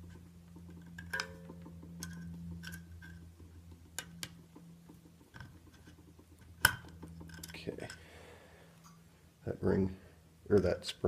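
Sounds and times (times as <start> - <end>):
screwdriver scraping metal: 0.0 - 8.0
steady low hum: 0.0 - 11.0.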